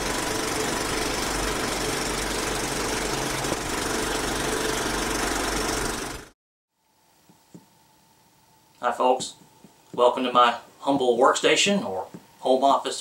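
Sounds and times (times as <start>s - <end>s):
film projector whirring: 0.0s - 6.4s.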